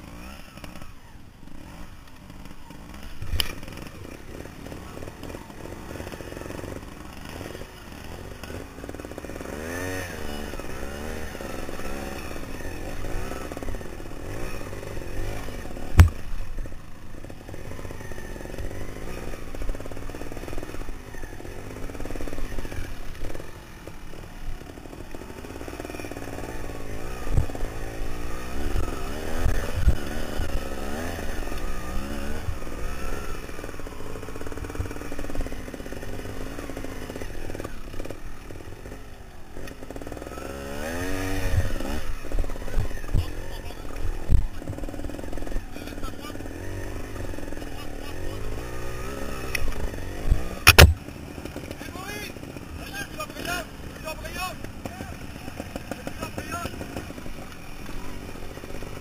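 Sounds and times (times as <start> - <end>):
motorcycle engine revving: 0.0 - 59.0
sharp knocks: 16.0 - 16.2, 50.6 - 51.0.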